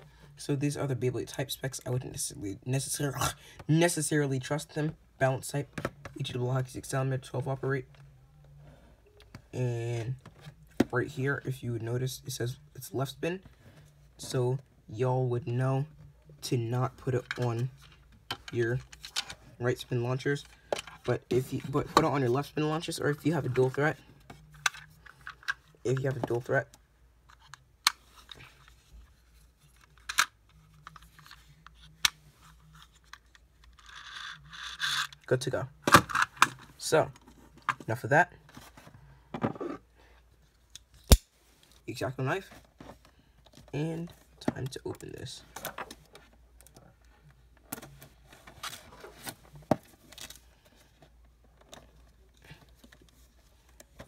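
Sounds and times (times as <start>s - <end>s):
plastic toy being handled: 23.4s - 41.8s, 42.4s - 54.0s.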